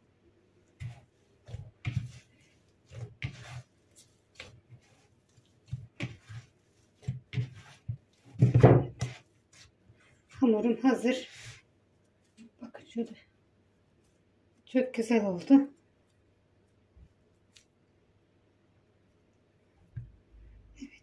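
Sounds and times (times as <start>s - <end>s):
hands kneading dough in bowl: 0.0s - 17.8s
dough thumping into bowl: 7.0s - 9.3s.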